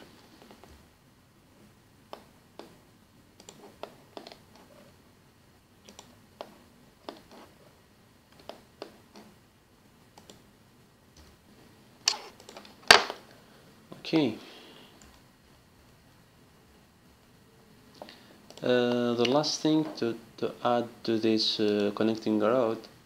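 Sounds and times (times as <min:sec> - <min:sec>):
mouse and keyboard clicks: 0:03.4 - 0:04.8.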